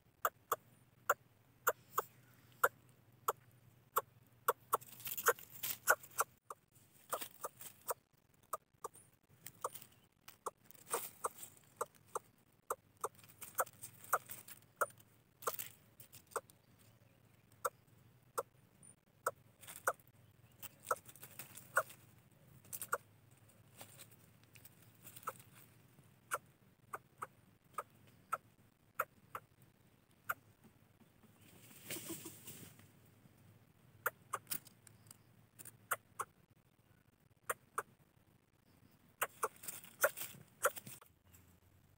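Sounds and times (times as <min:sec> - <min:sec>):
baby bird cheeping: 0:00.2 - 0:15.6, 0:22.8 - 0:23.0, 0:34.0 - 0:34.5, 0:35.1 - 0:36.4, 0:39.2 - 0:40.8
rustling: 0:04.7 - 0:12.3, 0:13.0 - 0:17.0, 0:19.6 - 0:26.0, 0:31.3 - 0:33.0, 0:39.2 - 0:41.6.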